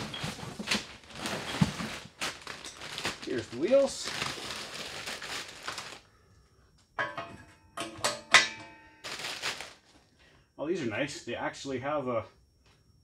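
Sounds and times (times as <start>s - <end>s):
plastic bag crinkling: 0.0s - 6.1s, 9.0s - 10.0s
metal hardware clinking: 7.0s - 9.0s.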